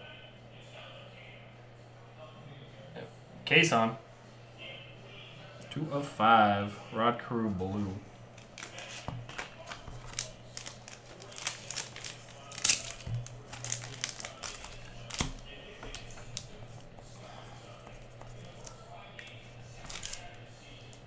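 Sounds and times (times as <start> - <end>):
plastic card sleeve crinkling: 8.4 - 16.9, 18.1 - 21.0.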